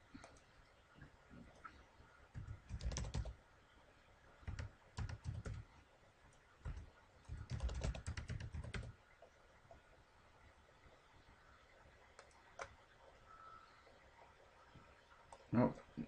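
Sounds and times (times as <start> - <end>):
computer keyboard typing: 2.3 - 3.3, 4.4 - 5.6, 6.6 - 8.9.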